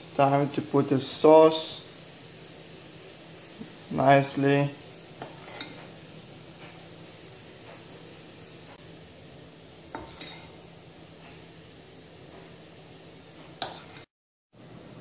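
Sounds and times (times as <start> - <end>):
faint steady hiss: 0.0 - 15.0
metal spoon clinking on crockery: 10.0 - 10.5.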